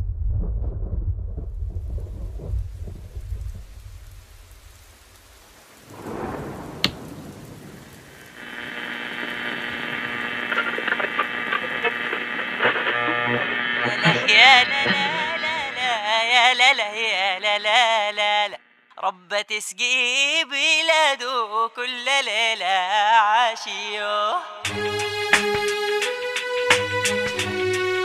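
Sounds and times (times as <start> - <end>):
thunder rumbling: 0.0 - 10.4
rain hissing: 1.8 - 15.8
sharp crack: 2.0 - 12.8
radio static and tones: 8.3 - 16.2.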